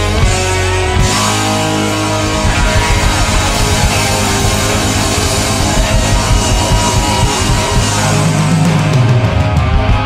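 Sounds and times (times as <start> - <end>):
live hard rock band: 0.0 - 10.0
fast hard drum hits: 2.1 - 9.1.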